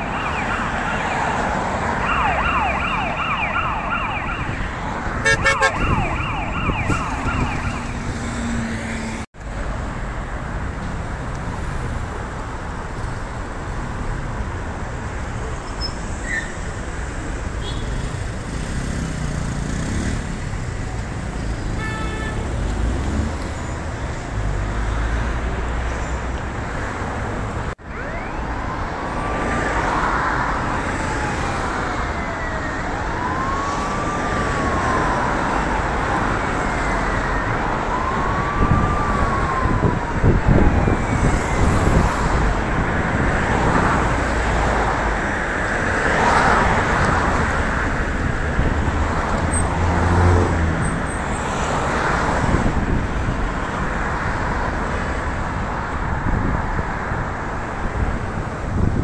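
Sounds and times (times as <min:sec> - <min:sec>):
emergency siren wailing: 0:00.0 - 0:09.0, 0:27.8 - 0:55.2
city street traffic: 0:00.0 - 0:59.0.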